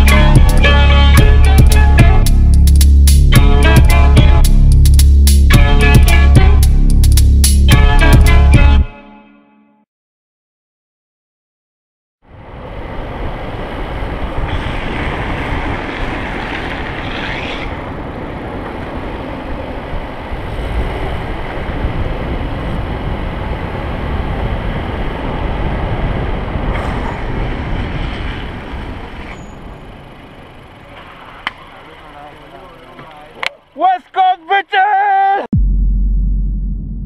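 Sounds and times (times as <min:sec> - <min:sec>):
wind buffeting microphone: 0:12.3 - 0:30.7
longboard wheels rolling on asphalt: 0:12.3 - 0:33.8.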